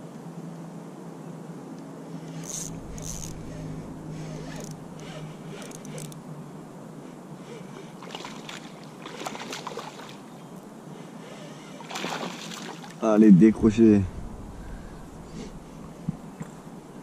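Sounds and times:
water lapping and sloshing: 7.0s - 13.2s.

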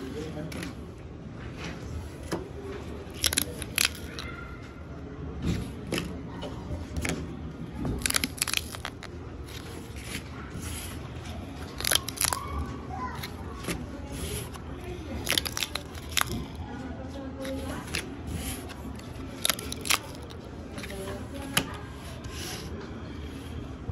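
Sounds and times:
cardboard tabs tearing: 3.2s - 4.2s, 8.0s - 10.1s, 11.7s - 12.4s, 15.2s - 16.6s, 17.4s - 21.0s.

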